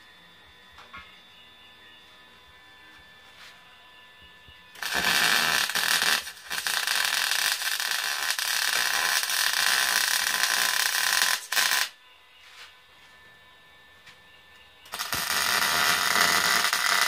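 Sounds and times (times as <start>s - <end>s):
arc welding hiss: 4.8s - 12.0s, 14.9s - 17.0s.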